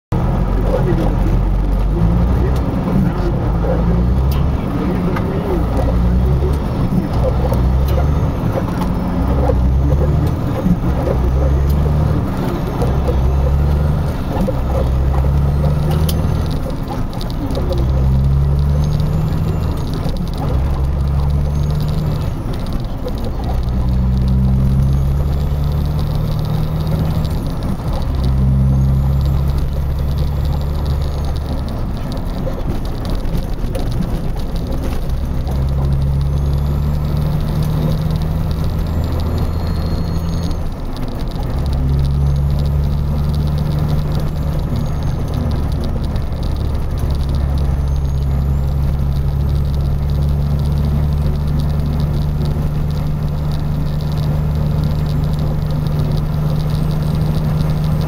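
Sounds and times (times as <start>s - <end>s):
vehicle engine and tyre rumble: 0.0s - 58.0s
rattles and knocks over bumps: 0.1s - 58.0s.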